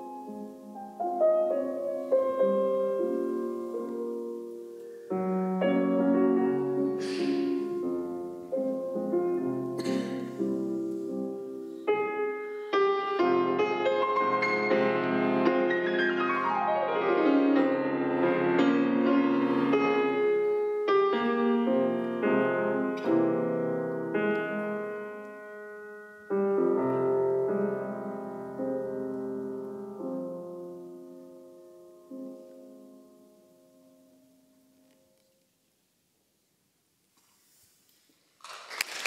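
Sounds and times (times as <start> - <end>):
grand piano classical music: 0.0 - 35.7.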